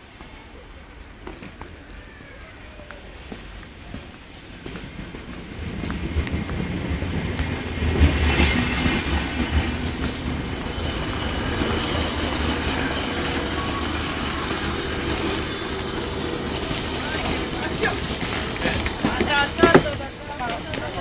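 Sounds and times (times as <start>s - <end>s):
train wheels rumbling: 0.0s - 21.0s
train brakes squealing: 8.0s - 21.0s.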